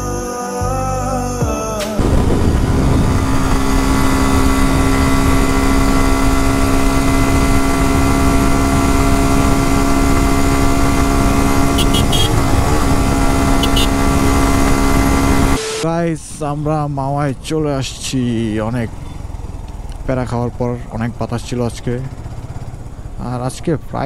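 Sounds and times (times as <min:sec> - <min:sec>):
wind rush on microphone: 0:02.0 - 0:15.6
motorcycle engine cruising: 0:02.0 - 0:24.0.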